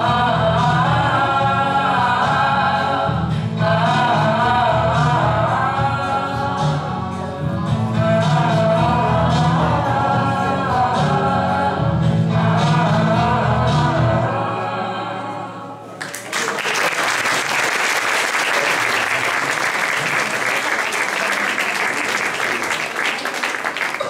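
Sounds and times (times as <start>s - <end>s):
mixed choir singing: 0.0s - 7.2s, 8.0s - 16.0s
audience applause: 16.0s - 24.0s.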